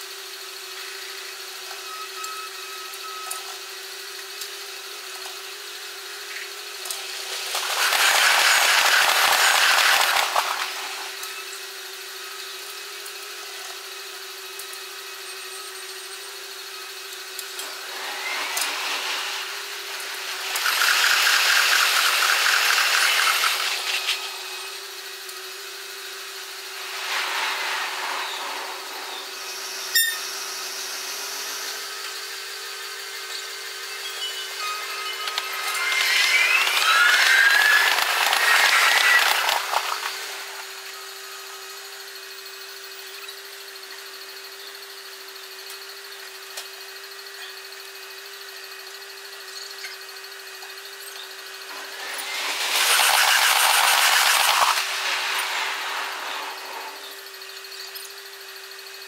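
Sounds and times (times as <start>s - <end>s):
steady hum: 6.8s - 11.6s, 33.0s - 41.1s, 51.6s - 57.7s
trains rushing past: 7.0s - 11.2s, 17.6s - 24.7s, 26.6s - 30.0s, 34.0s - 40.9s, 51.6s - 57.5s.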